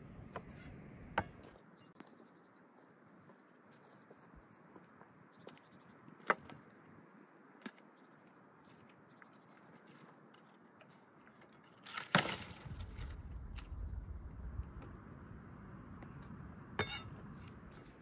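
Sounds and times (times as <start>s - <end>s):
dry branches cracking: 9.5s - 14.2s.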